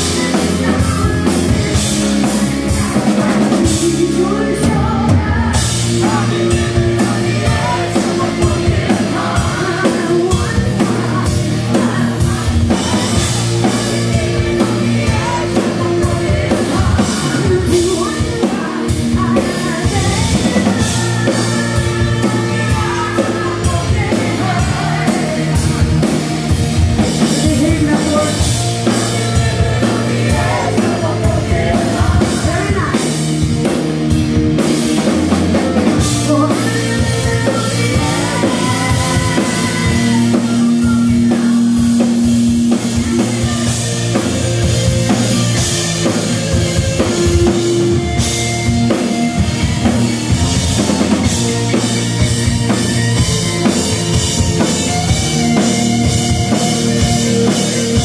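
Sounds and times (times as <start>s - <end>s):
female lead vocal: 0.0s - 33.4s, 35.8s - 44.2s
live rock band playing: 0.0s - 58.0s.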